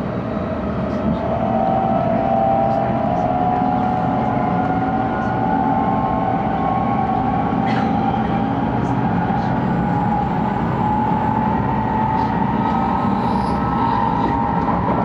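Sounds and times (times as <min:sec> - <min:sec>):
train running rumble and hiss: 0:00.0 - 0:15.0
train motor whine: 0:08.2 - 0:15.0.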